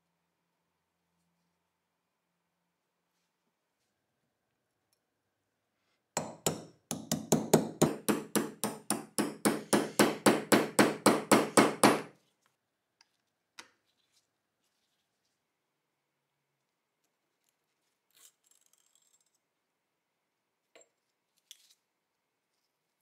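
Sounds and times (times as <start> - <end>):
hammer tapping steel punch: 6.2 - 12.1.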